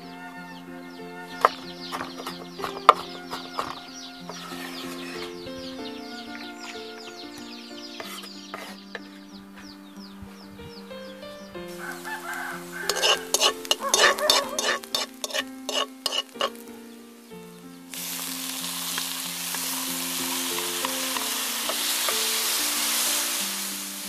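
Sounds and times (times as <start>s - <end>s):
soft background music: 0.0s - 24.0s
tomatoes sizzling in a pan: 1.3s - 9.0s, 11.7s - 24.0s
metal spoon scraping a pan: 1.4s - 5.3s, 8.0s - 9.0s, 12.8s - 16.6s.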